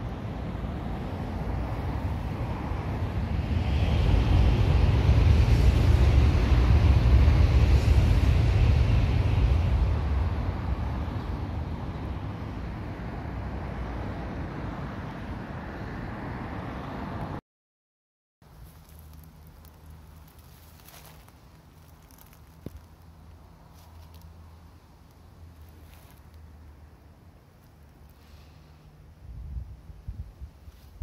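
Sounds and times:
low rushing rumble: 0.0 - 15.7.

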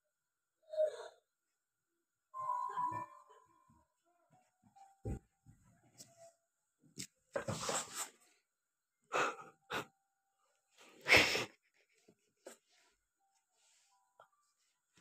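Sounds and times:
person hissing breathily: 11.0 - 11.6.

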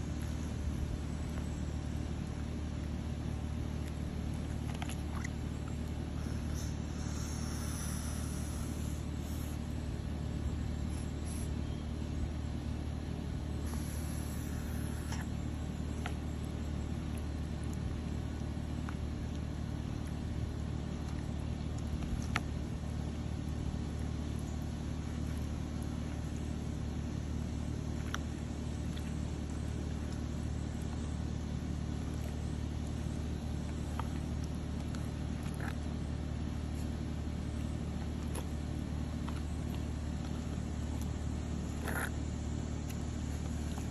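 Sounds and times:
low machine hum: 0.0 - 43.9
tortoise biting food clicks: 33.7 - 36.0, 36.8 - 43.9.

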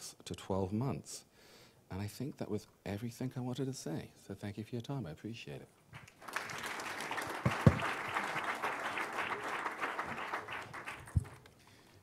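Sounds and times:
audience applauding: 6.0 - 11.5.

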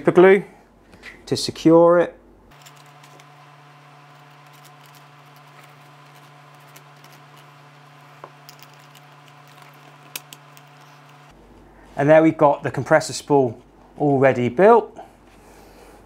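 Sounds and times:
steady low hum: 2.1 - 14.2
plastic parts clicking and tapping: 8.2 - 11.2.

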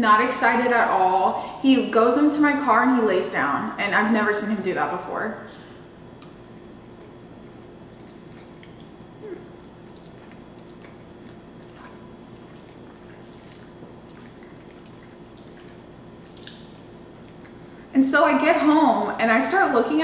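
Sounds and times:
faint steady hum: 0.0 - 20.0
wet mouth clicks and smacks: 6.2 - 17.6
slurping and chewing food: 6.2 - 17.9.

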